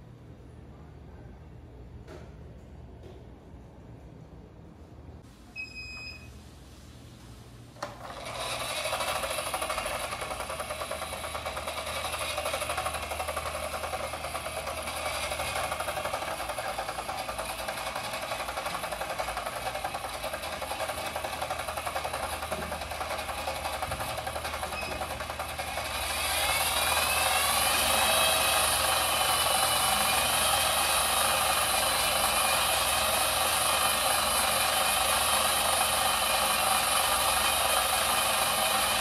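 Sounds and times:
short electronic beeps: 5.6 - 6.4, 24.7 - 25.0
toy wheels spinning: 7.8 - 39.0
treadmill belt whirring: 7.8 - 39.0.

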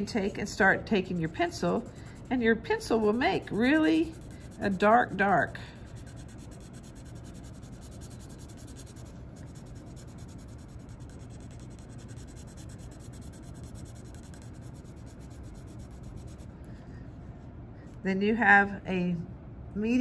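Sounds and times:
pencil scratching on paper: 0.8 - 16.5.

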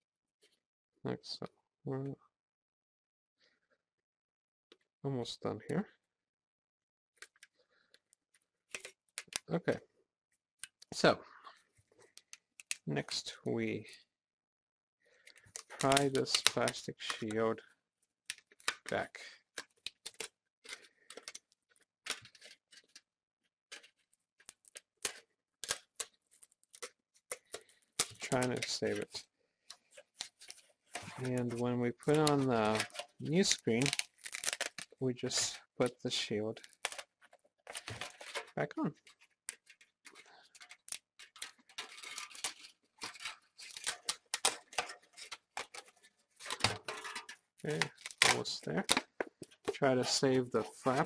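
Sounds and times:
plastic foil being peeled: 30.2 - 35.4, 37.7 - 50.2.

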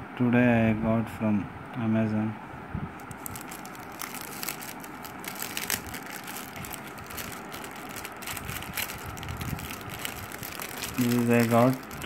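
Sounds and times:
plastic bag crinkling: 3.0 - 12.0.

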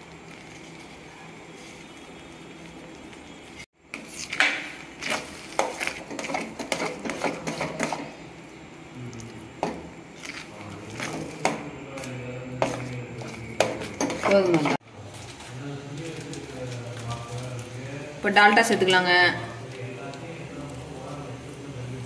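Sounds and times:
steel spoon scraping a pan: 5.0 - 8.2.

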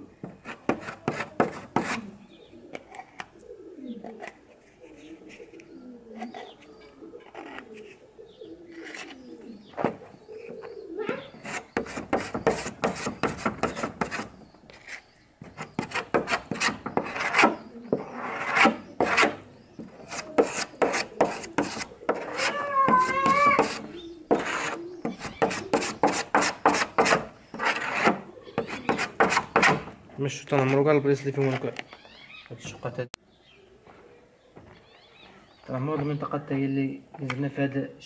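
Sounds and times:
putty knife scraping wood: 0.4 - 2.1, 11.3 - 29.9.

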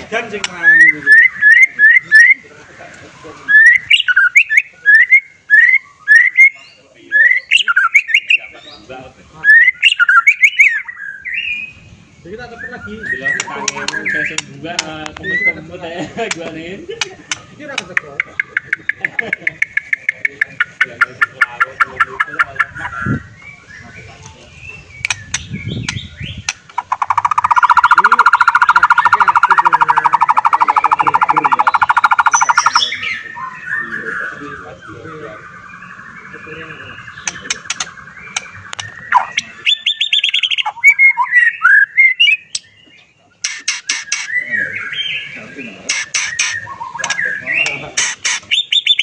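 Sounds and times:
bird trilling: 0.0 - 2.5, 3.4 - 15.7, 17.0 - 49.0
bird whistling song: 0.5 - 2.4, 3.4 - 8.8, 9.4 - 14.4, 18.2 - 49.0
bird clicks: 13.4 - 15.2, 16.3 - 20.8, 25.0 - 32.8, 37.2 - 39.5, 43.4 - 44.3, 45.9 - 49.0.

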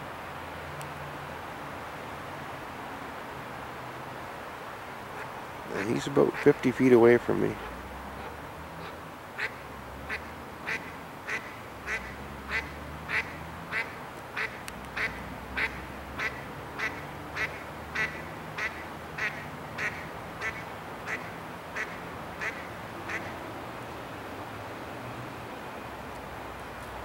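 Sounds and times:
duck quacking: 5.2 - 6.6, 8.8 - 23.3.

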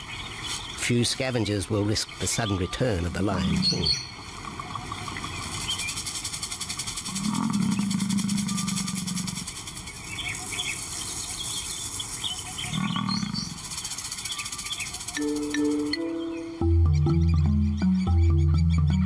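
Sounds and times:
steady high hiss: 0.0 - 16.8
bird-like chirps: 0.0 - 19.0
lion growling low: 7.1 - 9.5, 12.6 - 13.6.

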